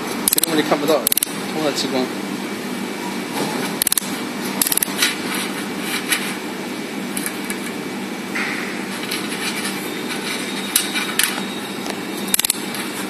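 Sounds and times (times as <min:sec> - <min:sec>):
welding machine humming: 0:00.0 - 0:13.0.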